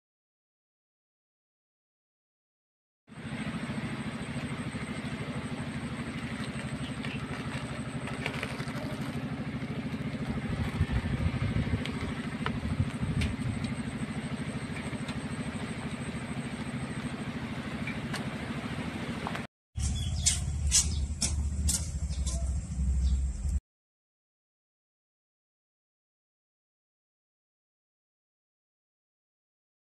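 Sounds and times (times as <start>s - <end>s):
deeper hum: 3.1s - 23.6s
low mechanical rumble: 3.1s - 23.6s.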